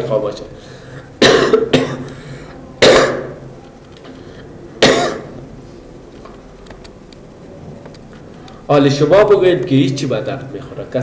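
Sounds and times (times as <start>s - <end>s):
person coughing: 1.2s - 2.1s, 2.8s - 3.4s, 4.8s - 5.4s.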